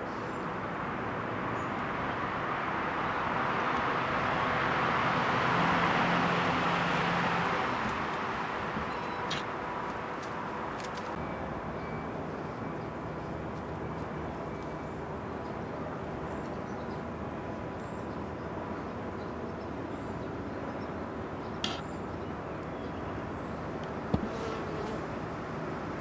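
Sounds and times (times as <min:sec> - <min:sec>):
sharp click: 0:21.6 - 0:21.8.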